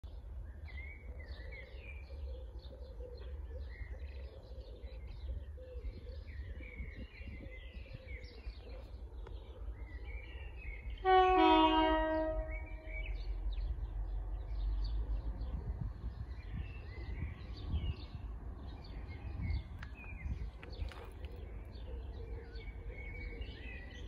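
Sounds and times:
birds singing: 0:00.0 - 0:24.0
locomotive two-tone horn: 0:11.0 - 0:13.1.

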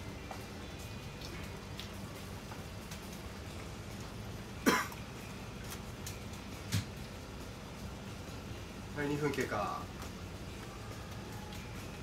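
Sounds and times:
low room hum: 0:00.0 - 0:12.0
man coughing: 0:04.6 - 0:05.0.

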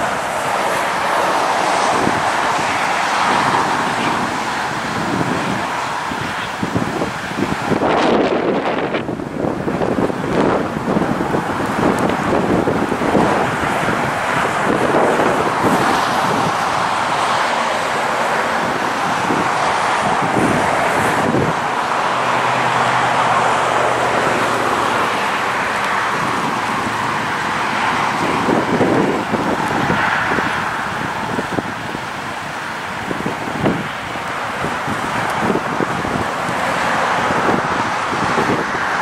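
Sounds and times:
highway traffic: 0:00.0 - 0:39.0
wind buffeting microphone: 0:00.0 - 0:39.0.

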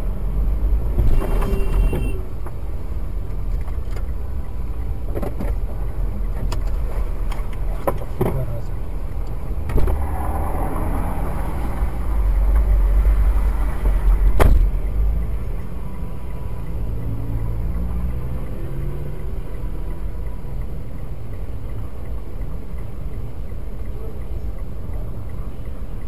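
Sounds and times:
low traffic rumble: 0:00.0 - 0:26.0
bus passing: 0:08.9 - 0:21.4.

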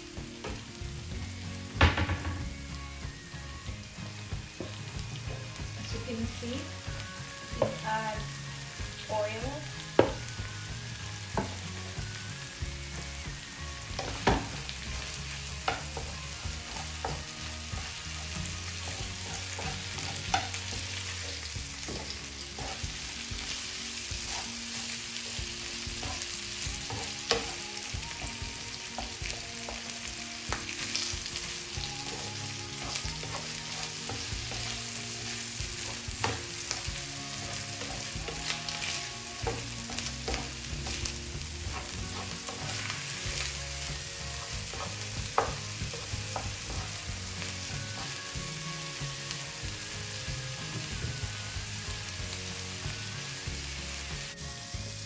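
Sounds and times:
food sizzling in a frying pan: 0:00.0 - 0:55.0
wooden spatula scraping pan: 0:15.6 - 0:23.6, 0:24.2 - 0:28.4, 0:31.8 - 0:48.3.

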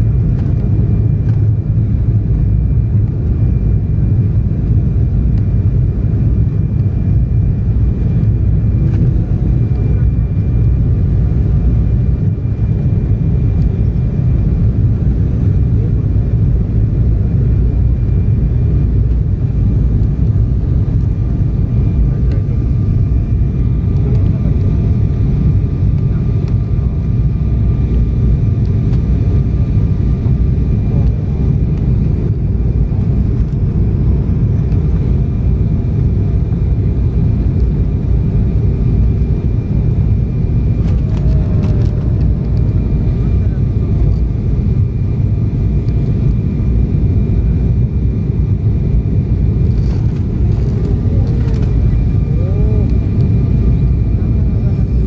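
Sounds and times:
jet engine cabin rumble: 0:00.0 - 0:55.0
faint whining tones: 0:00.1 - 0:55.0.

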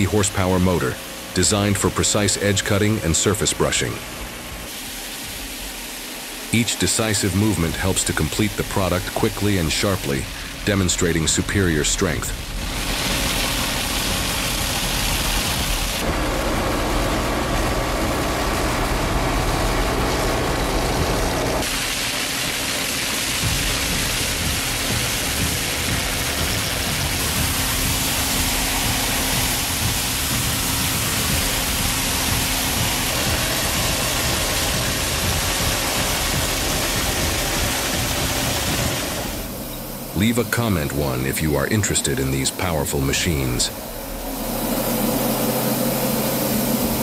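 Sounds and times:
tractor engine running: 0:06.5 - 0:47.0
rotary brush whirring and scrubbing: 0:11.7 - 0:40.1.

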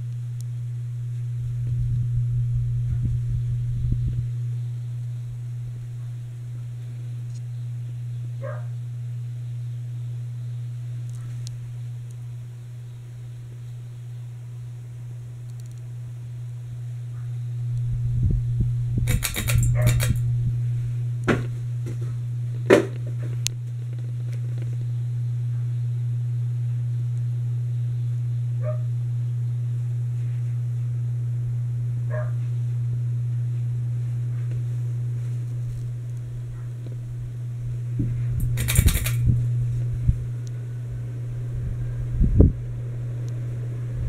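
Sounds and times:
ceiling fan motor humming: 0:00.0 - 0:44.0
sharp clicks and knocks: 0:19.1 - 0:20.2, 0:38.4 - 0:39.3.

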